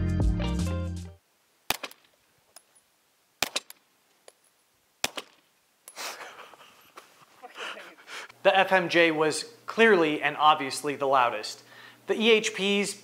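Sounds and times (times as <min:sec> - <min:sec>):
soft hiss: 0:01.1 - 0:13.0
suppressed pistol shots: 0:01.7 - 0:02.1, 0:03.4 - 0:03.8, 0:05.0 - 0:05.5.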